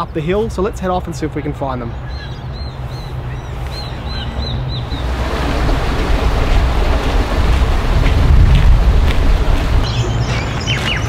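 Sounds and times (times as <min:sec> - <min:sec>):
wind buffeting microphone: 0:02.2 - 0:11.0.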